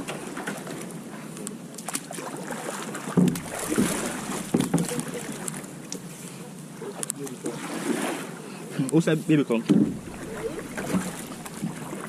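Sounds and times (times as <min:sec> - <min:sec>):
water sloshing around hull: 0:00.0 - 0:12.0
boat knocks and thuds: 0:03.0 - 0:05.8, 0:09.6 - 0:12.0.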